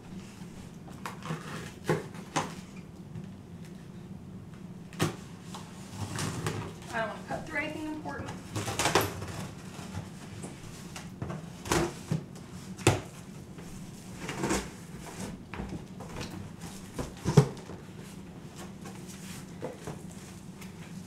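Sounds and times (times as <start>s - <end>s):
cardboard ripping and scraping: 1.0s - 2.3s, 14.1s - 15.4s.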